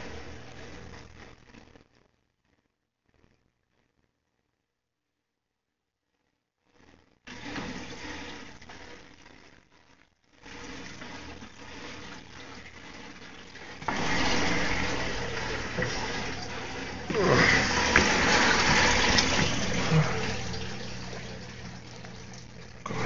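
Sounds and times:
water rushing and splashing: 11.8s - 23.0s.

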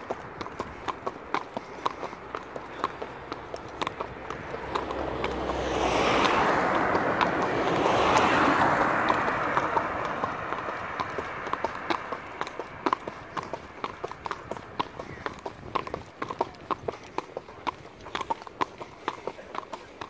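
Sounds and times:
hooves clip-clopping: 0.0s - 20.0s
rush of noise: 4.2s - 12.2s.

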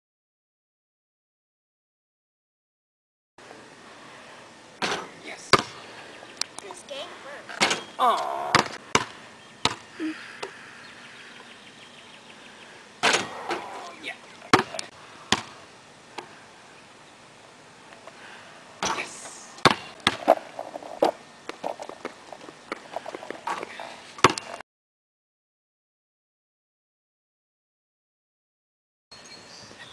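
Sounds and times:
basketball bouncing on concrete: 8.5s - 9.8s, 14.5s - 15.5s, 19.6s - 20.4s
basketball striking hoop: 8.5s - 9.8s, 19.6s - 20.3s.

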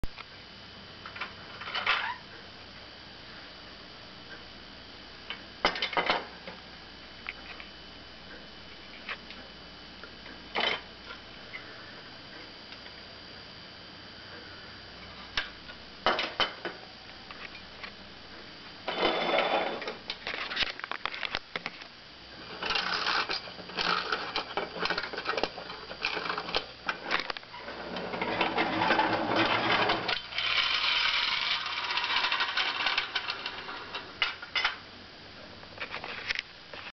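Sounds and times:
clockwork toy motor whirring: 22.5s - 27.2s, 27.8s - 34.0s.

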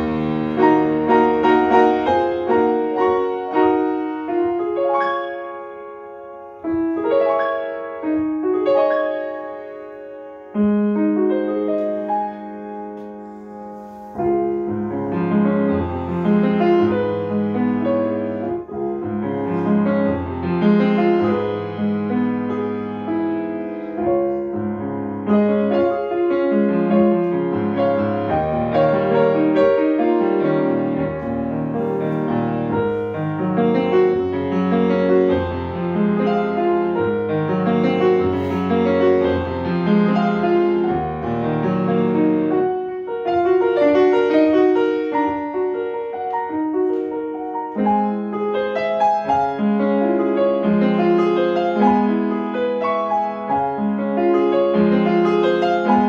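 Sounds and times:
grand piano playing: 0.0s - 56.0s.

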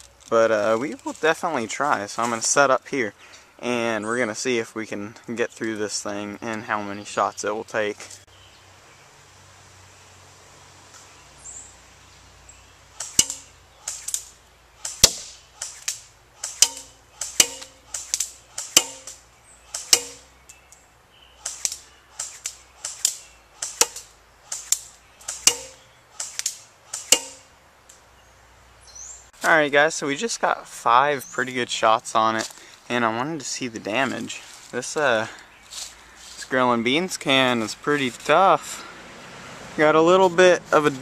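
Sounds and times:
airsoft gun firing single shots: 13.0s - 20.3s.

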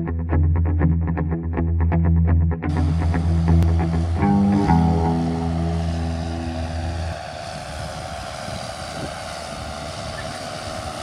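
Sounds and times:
background music: 2.6s - 7.0s
tractor engine rumble: 2.7s - 11.0s.

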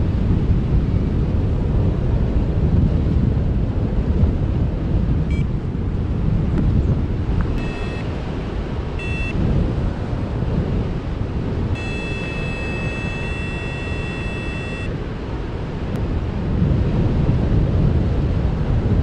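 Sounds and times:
wind rushing over microphone: 0.0s - 19.0s
variometer beeping: 5.3s - 5.5s, 7.4s - 8.3s, 8.9s - 9.5s, 11.8s - 15.0s.

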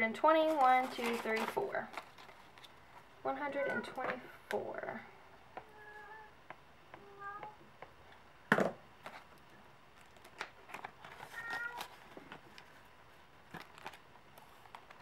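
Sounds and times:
cat meowing: 7.0s - 7.6s, 11.4s - 11.8s.

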